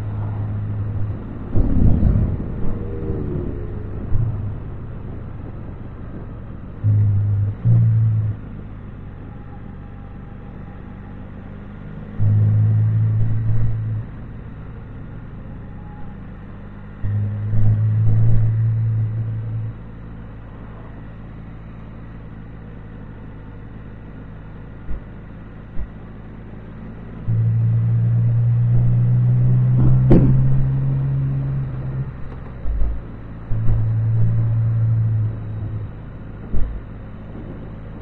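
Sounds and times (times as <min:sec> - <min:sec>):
motorcycle engine and road noise: 0:00.0 - 0:38.0
steady low drone: 0:00.0 - 0:38.0
soft thumps: 0:28.8 - 0:30.9, 0:36.4 - 0:37.5.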